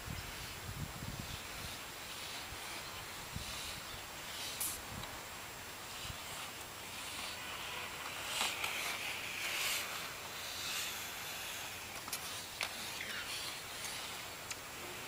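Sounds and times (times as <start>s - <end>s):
skate wheels rolling on hard court: 5.8s - 15.0s.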